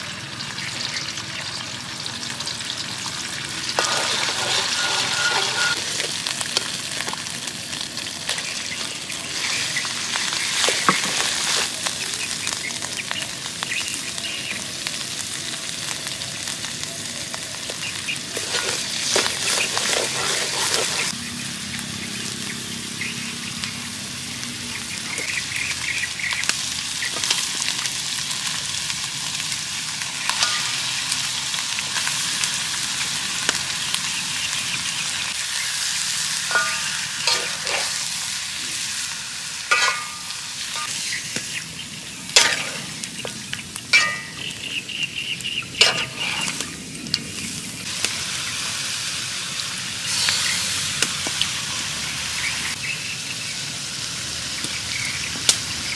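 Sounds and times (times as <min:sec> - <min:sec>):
food sizzling in a wok: 0:00.0 - 0:55.9
metal spatula scraping a pan: 0:03.7 - 0:06.2, 0:18.3 - 0:21.1, 0:30.3 - 0:30.9, 0:36.4 - 0:38.4, 0:39.7 - 0:41.1, 0:42.4 - 0:43.3, 0:43.9 - 0:44.5, 0:45.8 - 0:46.6.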